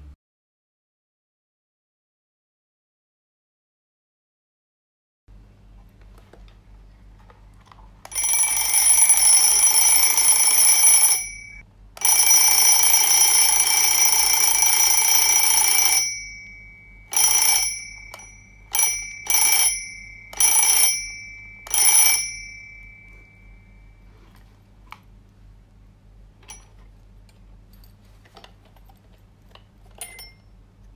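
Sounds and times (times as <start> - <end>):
mechanical alarm clock ringing: 8.1 - 24.0, 30.0 - 30.4.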